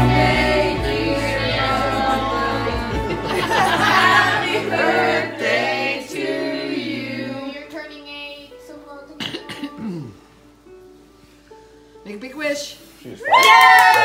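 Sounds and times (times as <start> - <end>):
choir-like singing: 0.0 - 7.7.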